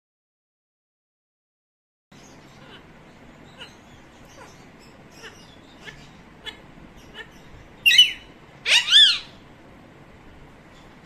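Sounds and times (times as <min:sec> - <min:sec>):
parakeet chirping: 0:02.2 - 0:09.5
parakeet loud calls: 0:02.2 - 0:09.5.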